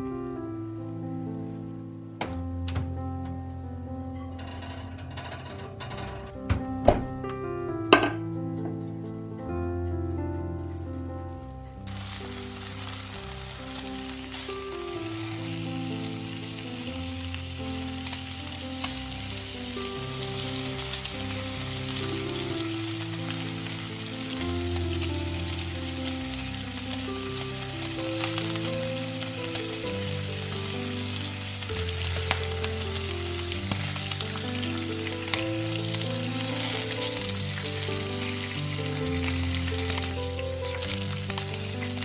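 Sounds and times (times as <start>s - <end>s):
background music: 0.0s - 42.0s
bacon sizzling in a pan: 11.8s - 42.0s.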